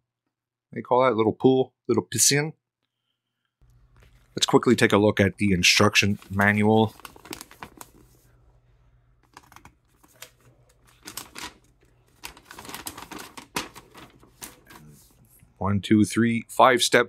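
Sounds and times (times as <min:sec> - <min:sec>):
paper rustling: 0:03.8 - 0:04.8, 0:05.6 - 0:08.4, 0:09.2 - 0:15.4.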